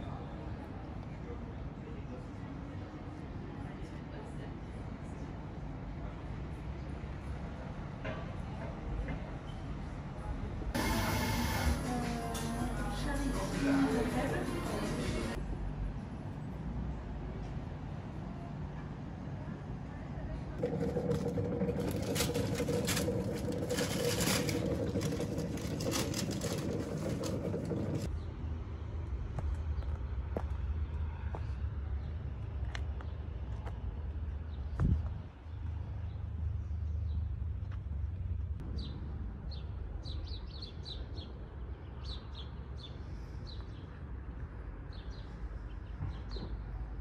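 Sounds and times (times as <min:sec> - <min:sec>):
mechanical hum with droning tone: 0:00.0 - 0:42.0
steady low rumble: 0:20.5 - 0:28.3
rustling noises: 0:20.6 - 0:28.1.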